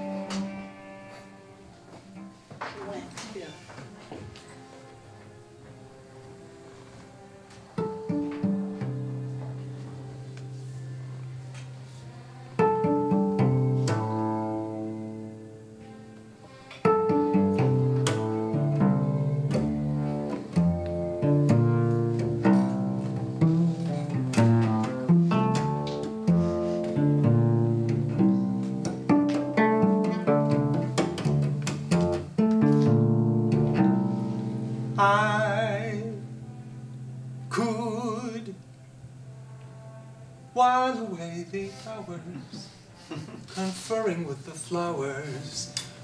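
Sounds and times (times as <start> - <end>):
cello played pizzicato: 0.0 - 2.4, 5.6 - 38.3.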